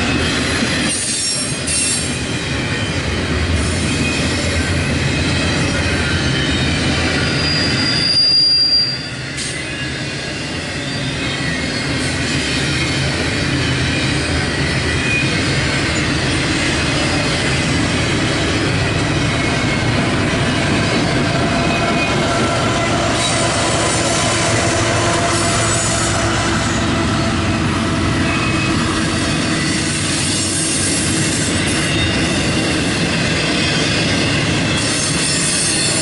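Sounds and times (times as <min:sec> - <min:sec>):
freight train rumbling past: 0:00.0 - 0:36.0
high-pitched wheel squeal: 0:05.2 - 0:12.8, 0:20.7 - 0:27.6, 0:33.6 - 0:36.0.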